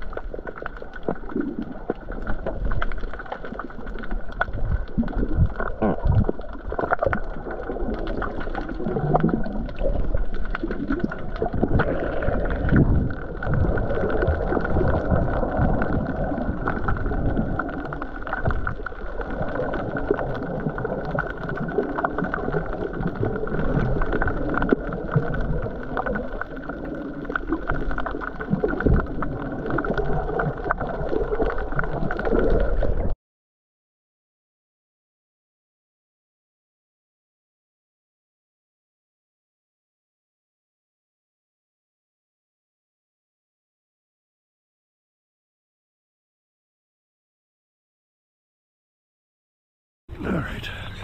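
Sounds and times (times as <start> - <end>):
muffled underwater sloshing: 0.0 - 33.2
small crackles: 0.0 - 33.2.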